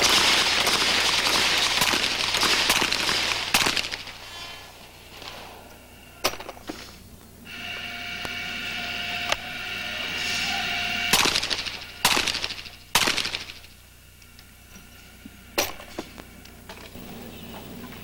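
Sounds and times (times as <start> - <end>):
sharp crack: 0.0 - 6.8, 11.1 - 13.8
steady whine: 0.0 - 18.0.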